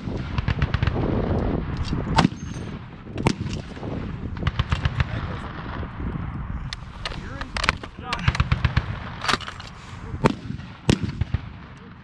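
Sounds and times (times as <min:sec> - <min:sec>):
fainter distant shots: 0:06.9 - 0:09.5, 0:10.2 - 0:12.0.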